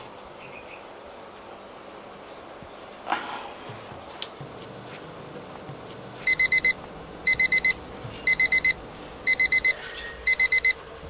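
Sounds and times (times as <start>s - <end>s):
mobile phone beeping ringtone: 6.3s - 10.8s.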